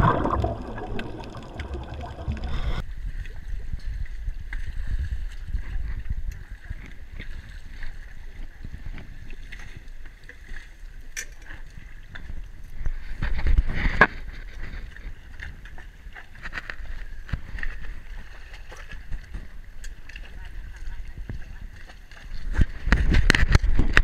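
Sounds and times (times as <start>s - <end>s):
sea water sloshing: 0.0s - 2.8s.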